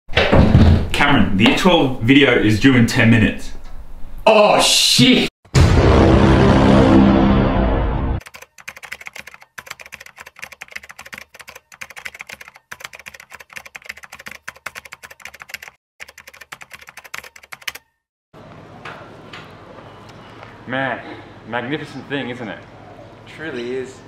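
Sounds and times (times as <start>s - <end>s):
loud deep sound: 5.5s - 8.2s
rapid typing on keyboard: 8.2s - 17.9s.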